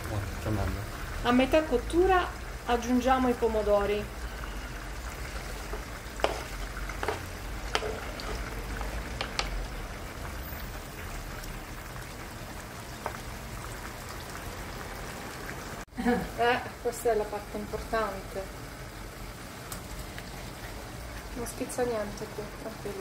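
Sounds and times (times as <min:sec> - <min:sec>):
peppers frying in oil: 0:00.0 - 0:23.0
wooden spoon knocking: 0:05.6 - 0:09.5.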